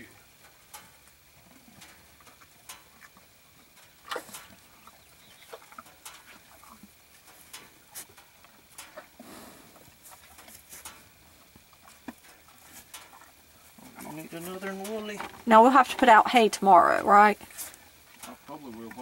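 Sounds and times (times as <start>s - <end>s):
cattle crunching treats: 0.7s - 15.9s.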